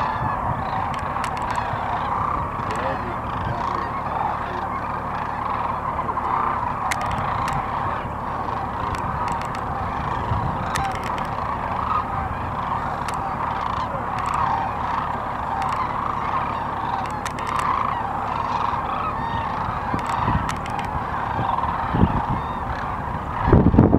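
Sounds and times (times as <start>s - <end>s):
cranes calling: 0.0s - 23.9s
low steady rumble: 0.0s - 23.9s.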